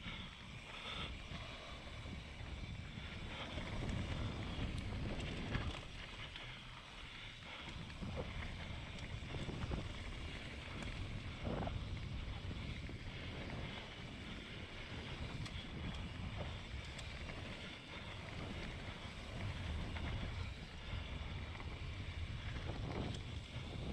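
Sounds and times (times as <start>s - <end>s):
bike knocking and rattling: 0.1s - 23.9s
tyres rolling on dirt: 1.4s - 23.9s
wind on microphone: 7.8s - 23.9s.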